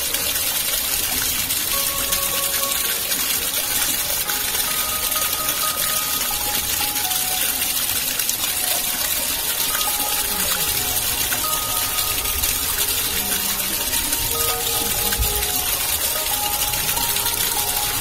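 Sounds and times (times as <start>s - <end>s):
soft music held notes: 0.0s - 18.0s
water gushing and splashing: 0.0s - 18.0s.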